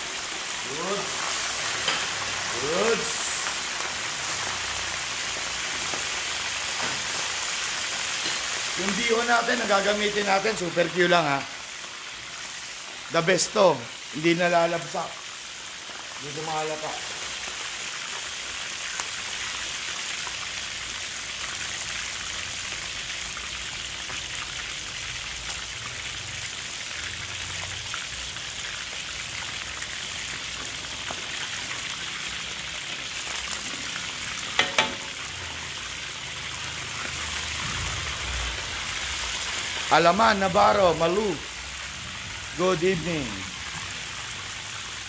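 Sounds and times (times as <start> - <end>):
chicken deep-frying in oil: 0.0 - 45.0.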